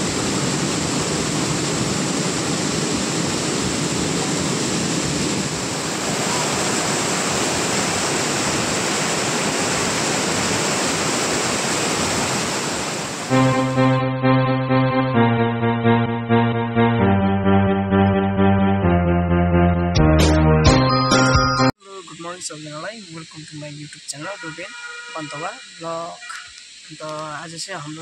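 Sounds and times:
waterfall roaring: 0.0s - 13.3s
music with sustained notes: 13.3s - 21.7s.

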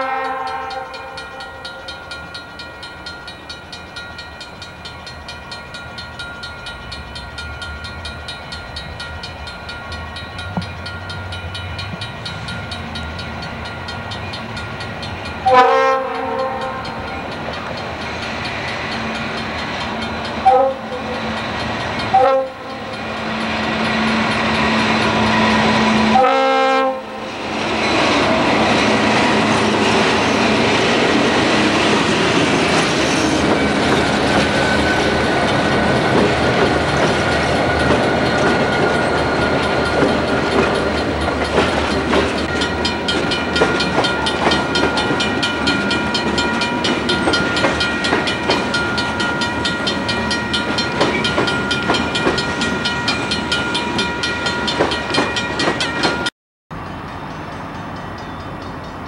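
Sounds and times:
locomotive horn: 0.0s - 1.2s, 15.4s - 17.0s, 20.4s - 21.4s, 22.1s - 23.4s, 24.0s - 27.5s
train wheel noise: 0.0s - 59.0s.

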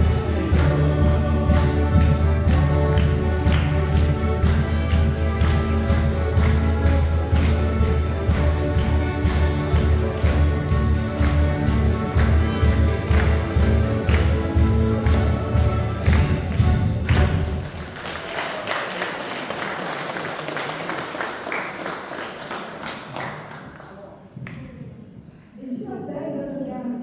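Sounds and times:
folk band playing: 0.0s - 18.1s
audience applause: 1.6s - 24.2s.

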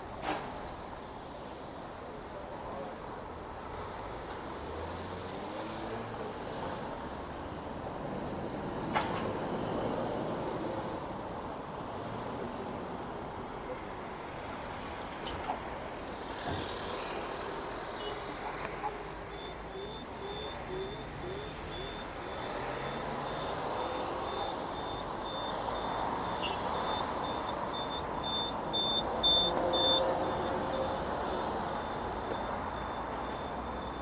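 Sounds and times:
street traffic passing: 0.0s - 34.0s
high-pitched electronic beeps: 18.9s - 34.0s.

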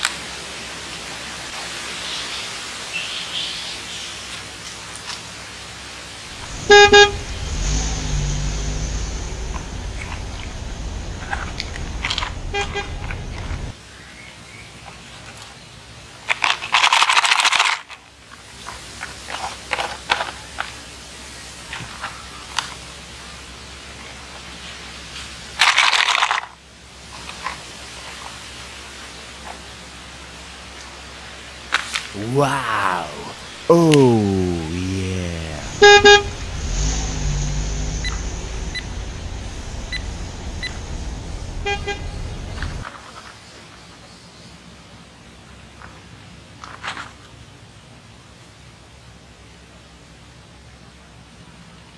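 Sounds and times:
low rumble: 6.3s - 13.7s, 35.6s - 42.8s
car horn beeping: 6.4s - 7.7s, 12.4s - 13.0s, 35.7s - 37.4s, 41.6s - 42.3s.

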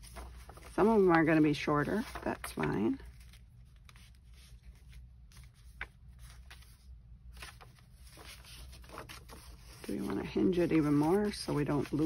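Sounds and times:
paper sheets rustling: 0.0s - 12.0s.

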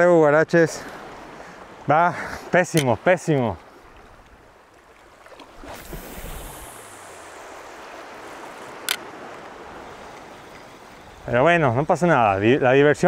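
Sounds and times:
sharp click: 8.8s - 9.1s.

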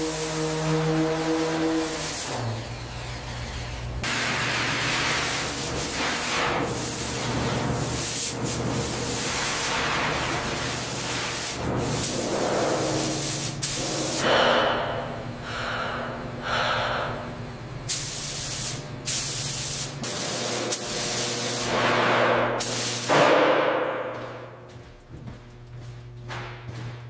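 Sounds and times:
steady low hum: 0.0s - 27.0s
spray guns hissing: 4.0s - 14.2s, 17.9s - 21.8s, 22.6s - 23.1s.

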